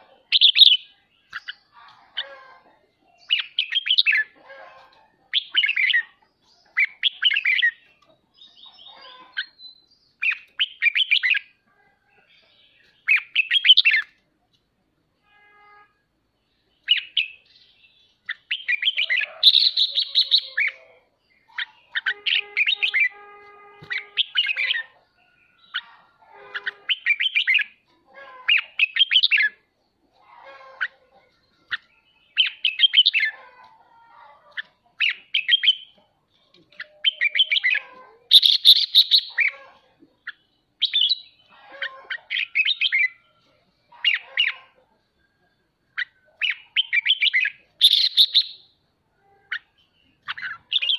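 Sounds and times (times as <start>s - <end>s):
bird chattering calls: 18.2s - 23.2s, 23.8s - 25.0s, 36.7s - 43.2s, 46.0s - 48.6s, 49.5s - 50.9s.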